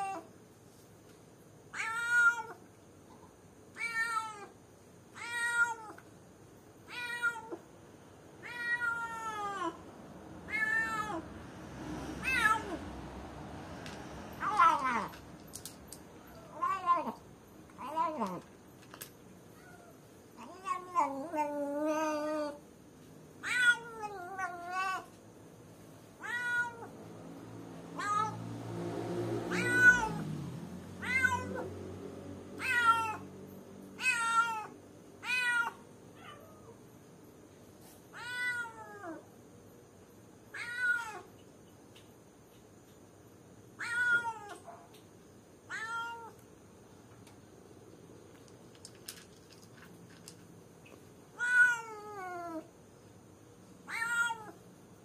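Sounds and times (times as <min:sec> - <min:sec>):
low background noise: 0:00.0 - 0:55.0
cat meowing: 0:01.7 - 0:02.6, 0:05.2 - 0:06.0, 0:06.9 - 0:07.6, 0:08.4 - 0:09.8, 0:10.5 - 0:11.2, 0:12.2 - 0:12.8, 0:16.2 - 0:17.2, 0:19.6 - 0:22.6, 0:23.4 - 0:25.1, 0:26.2 - 0:26.9, 0:29.5 - 0:30.2, 0:31.0 - 0:31.7, 0:32.6 - 0:33.3, 0:34.0 - 0:36.8, 0:38.2 - 0:39.2, 0:40.5 - 0:41.3, 0:43.8 - 0:44.6, 0:45.7 - 0:46.4, 0:51.4 - 0:52.7, 0:53.8 - 0:54.6.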